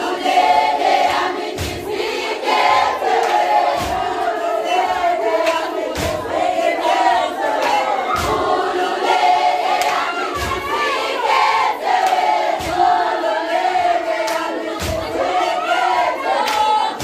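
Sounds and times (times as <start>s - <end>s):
women singing and chanting: 0.0s - 17.0s
shouts: 9.8s - 11.0s, 15.2s - 17.0s.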